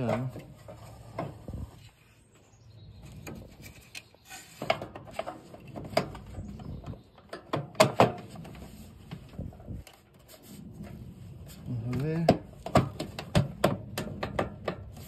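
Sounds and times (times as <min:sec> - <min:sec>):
plastic parts knocking and clicking: 0:12.2 - 0:15.0.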